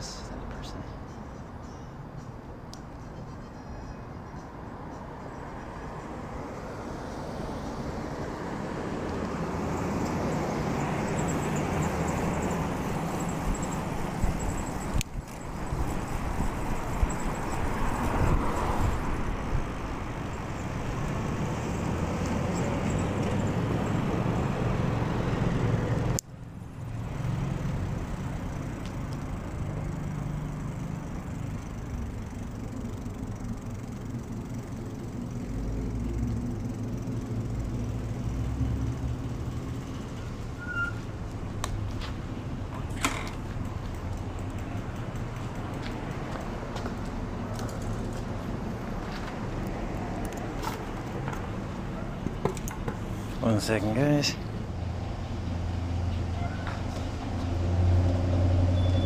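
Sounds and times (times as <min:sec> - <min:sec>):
cars passing: 0:00.0 - 0:59.0
wind noise on microphone: 0:13.4 - 0:20.5.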